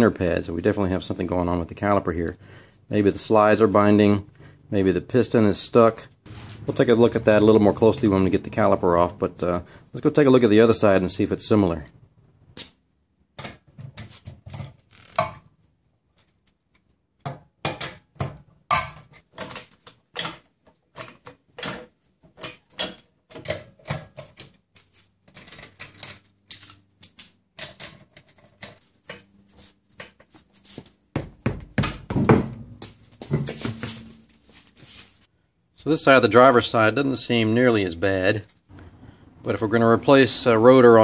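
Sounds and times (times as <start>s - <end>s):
boot footsteps on concrete: 30.4s - 35.2s.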